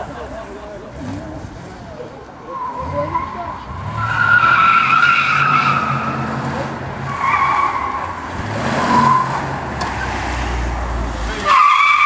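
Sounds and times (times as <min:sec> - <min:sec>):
tyres squealing: 0:02.4 - 0:10.3, 0:11.2 - 0:12.0.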